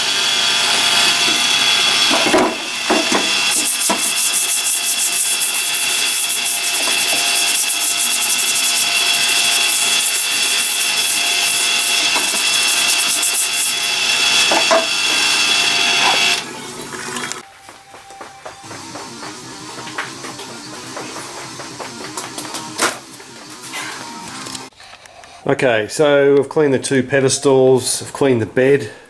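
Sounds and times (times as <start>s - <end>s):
solvent running over metal: 0.0s - 16.6s
brush scrubbing metal: 3.0s - 13.9s.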